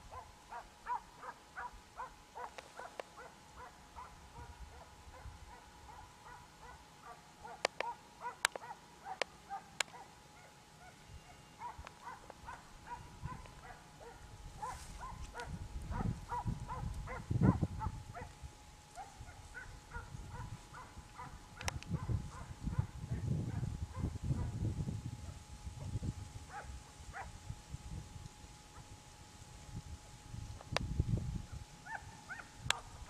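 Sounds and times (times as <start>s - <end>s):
hounds baying in distance: 0.0s - 24.6s, 25.2s - 27.4s, 31.5s - 33.0s
wind rumbling on microphone: 3.6s - 6.4s, 11.6s - 33.0s.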